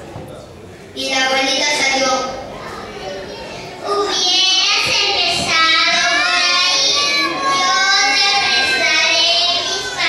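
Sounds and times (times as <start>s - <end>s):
child singing: 3.9s - 10.0s.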